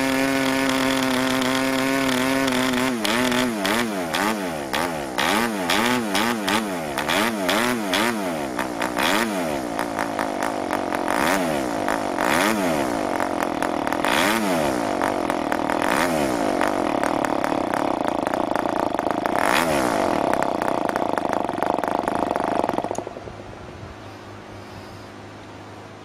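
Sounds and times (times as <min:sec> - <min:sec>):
model diesel engine running: 0:00.0 - 0:26.0
faint hiss: 0:23.0 - 0:26.0.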